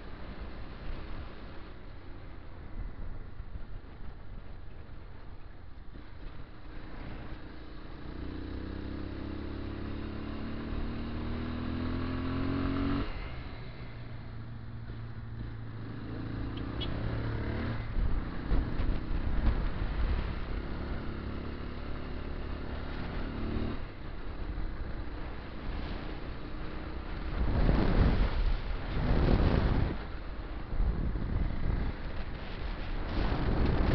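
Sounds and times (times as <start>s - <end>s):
small motorcycle engine accelerating: 8.0s - 13.5s.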